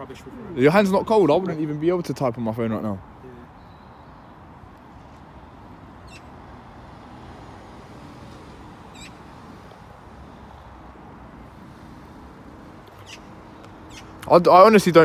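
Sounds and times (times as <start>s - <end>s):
high-pitched bird calls: 3.5s - 4.5s, 6.0s - 6.4s, 8.8s - 9.6s, 12.9s - 14.2s.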